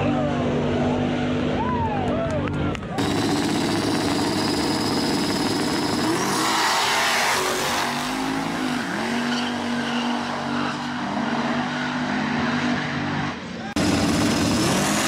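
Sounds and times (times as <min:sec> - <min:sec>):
drag car engines idling and revving: 0:00.0 - 0:15.0
tire squeal: 0:06.0 - 0:13.7.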